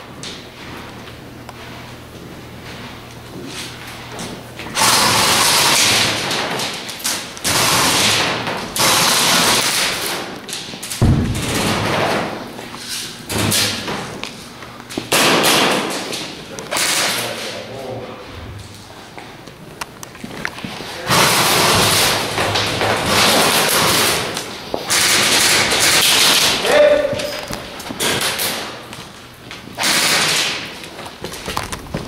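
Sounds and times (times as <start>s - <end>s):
sharp thump: 11.0s - 11.9s.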